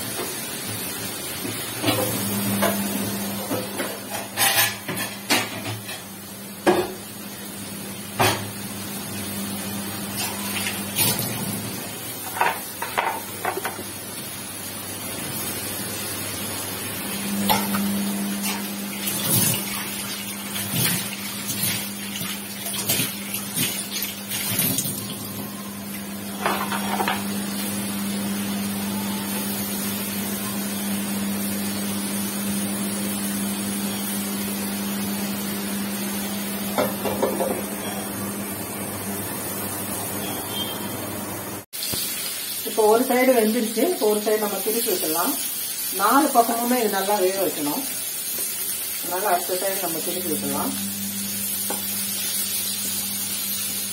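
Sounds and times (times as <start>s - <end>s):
chicken sizzling in a frying pan: 0.0s - 53.9s.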